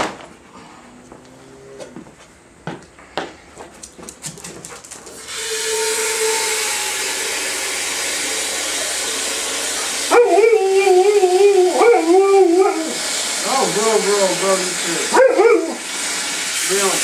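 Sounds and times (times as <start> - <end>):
tap water running into container: 5.2 - 17.0
dog howling vocalisation: 10.1 - 13.0, 15.1 - 15.8.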